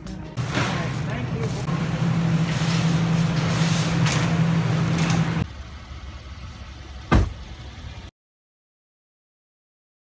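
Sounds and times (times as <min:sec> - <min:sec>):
shopping cart rolling and rattling: 0:00.4 - 0:05.4
sharp thump: 0:07.1 - 0:07.4.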